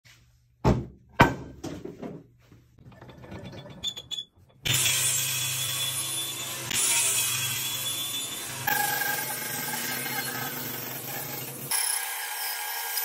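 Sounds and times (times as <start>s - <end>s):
wooden boards knocking on workbench: 0.6s - 2.3s
table saw running: 4.7s - 13.0s.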